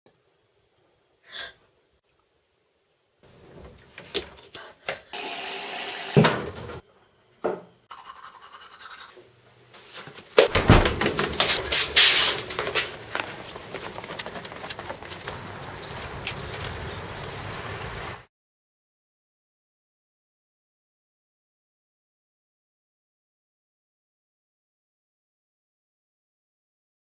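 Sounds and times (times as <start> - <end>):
footsteps hurrying down stairs: 9.9 - 17.4.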